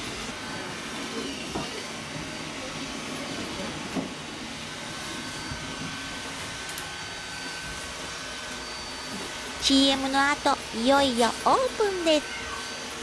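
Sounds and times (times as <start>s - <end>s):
faint high whine: 4.6s - 13.0s.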